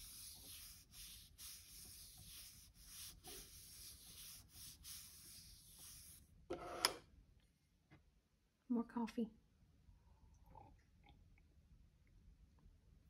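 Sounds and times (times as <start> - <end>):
hand rubbing paper sticker: 0.0 - 6.2.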